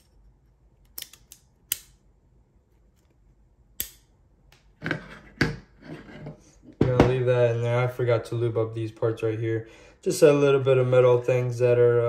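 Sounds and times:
pistol parts clicking: 0.8 - 2.0.

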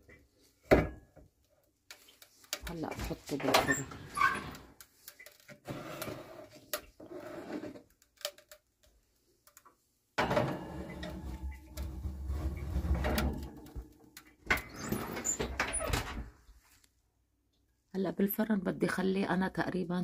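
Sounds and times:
baking tray clattering: 10.2 - 15.4.

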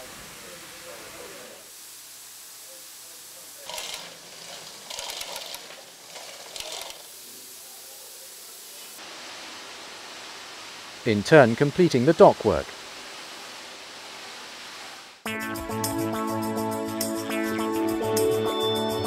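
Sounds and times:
steady hiss: 0.0 - 15.2
mechanical ratcheting clicks: 3.7 - 7.0.

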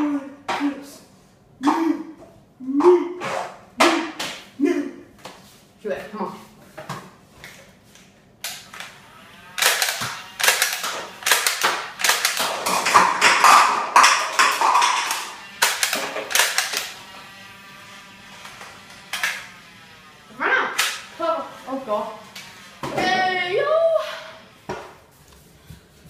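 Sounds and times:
foam-dart blaster clicks: 9.6 - 12.6, 13.2 - 16.9
cups struck and tumbling: 11.7 - 16.7.

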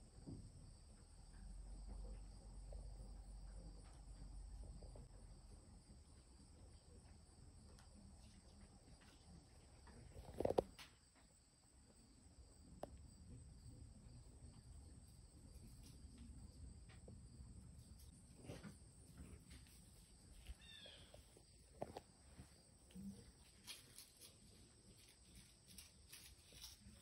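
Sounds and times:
insects trilling: 10.2 - 11.3, 19.9 - 27.0.

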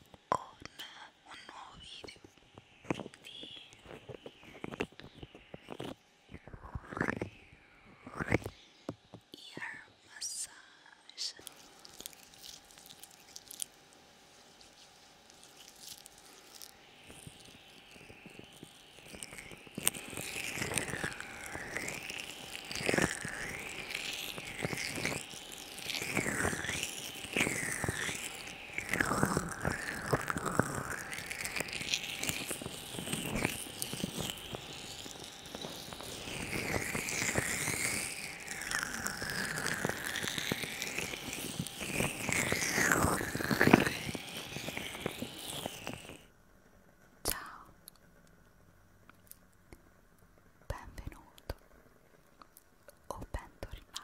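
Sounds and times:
hands rubbing around microphone: 2.0 - 7.3, 11.4 - 46.2.

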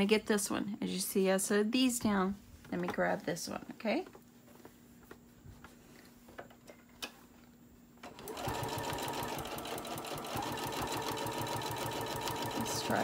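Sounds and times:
sewing machine stitching: 8.0 - 13.0.

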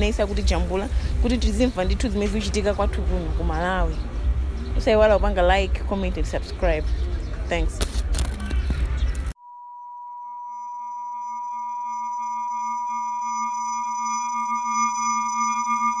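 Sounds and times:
steady electronic tones: 9.4 - 16.0.

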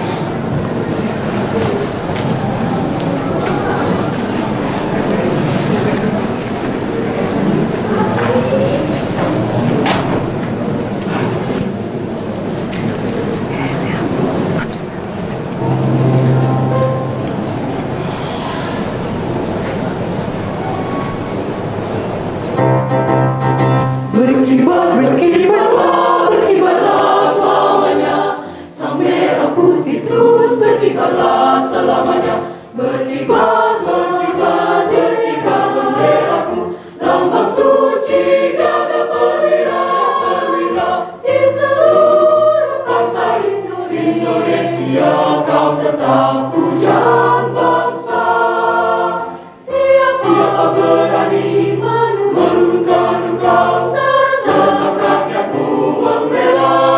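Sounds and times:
mixed choir singing: 0.0 - 12.2, 15.4 - 56.9.

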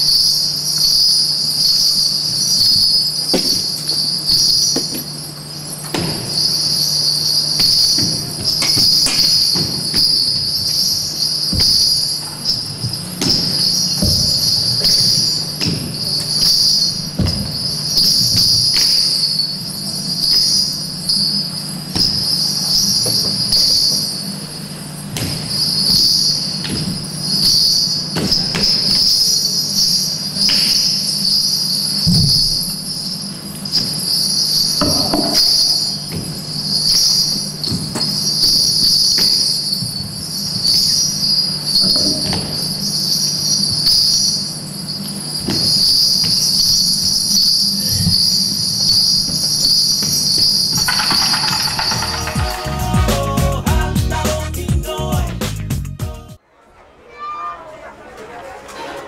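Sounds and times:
small bells jingling: 46.8 - 54.2.

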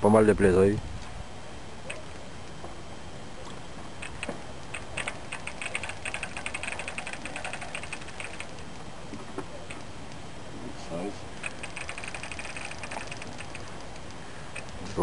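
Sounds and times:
fishing reel clicking: 4.0 - 8.6, 11.4 - 14.8.

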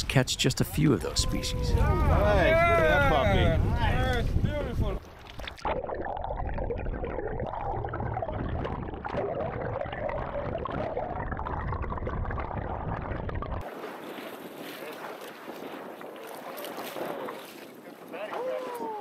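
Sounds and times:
waves: 0.0 - 5.7, 13.6 - 19.0
wind on microphone: 1.0 - 19.0
underwater gurgling and sloshing: 5.0 - 18.1.

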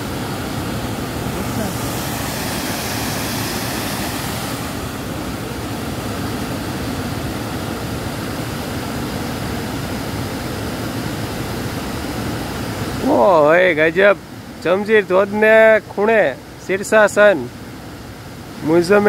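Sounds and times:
waterfall rushing: 0.0 - 14.6.

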